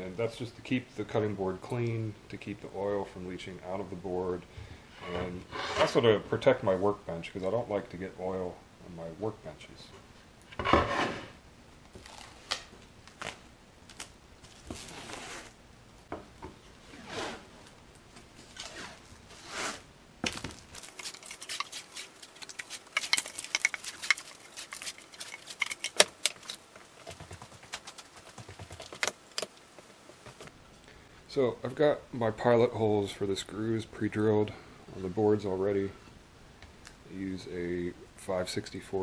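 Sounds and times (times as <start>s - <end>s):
stretch wrap rustling and crinkling: 11.9s - 15.6s, 16.8s - 19.8s.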